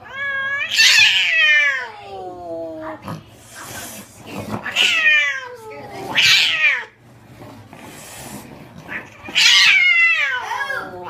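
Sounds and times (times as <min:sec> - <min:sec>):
cat yowling: 0:00.0 - 0:02.2, 0:04.6 - 0:06.9, 0:09.3 - 0:11.0.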